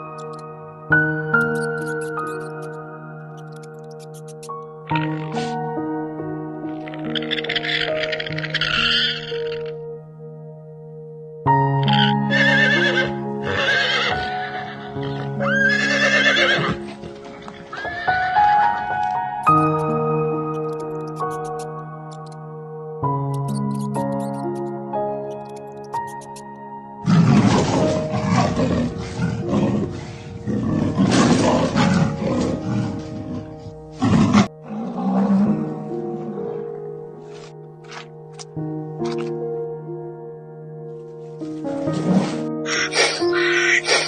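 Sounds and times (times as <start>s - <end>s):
background music: 0.0s - 44.0s
alpaca warbling cries: 6.8s - 9.7s, 42.7s - 44.0s
big cat growling and roaring: 27.0s - 36.8s.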